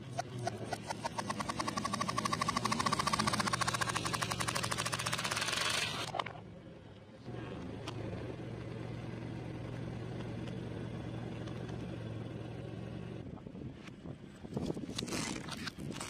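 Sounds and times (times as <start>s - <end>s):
car engine running: 0.0s - 6.4s.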